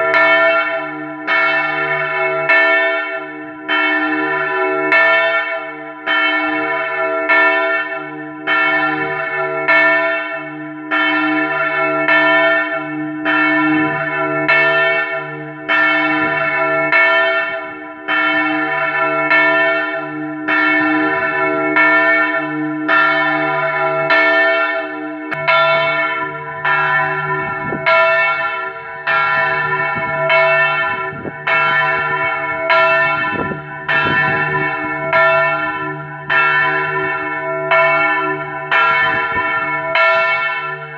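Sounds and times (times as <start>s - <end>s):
large church bell ringing: 0.0s - 40.9s
bell low hum: 20.2s - 40.9s.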